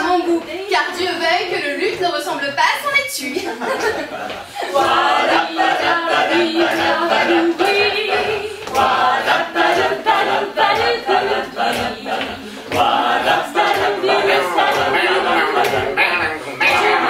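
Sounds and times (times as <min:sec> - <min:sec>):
group singing unaccompanied: 0:03.8 - 0:17.0.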